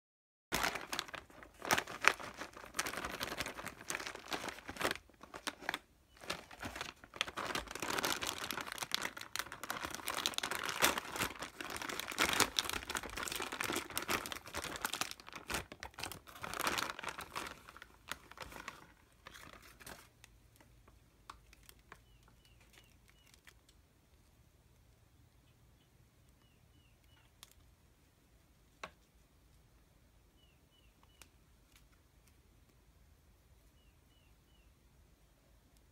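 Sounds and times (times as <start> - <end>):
plastic crinkling and tearing: 0.5 - 23.8.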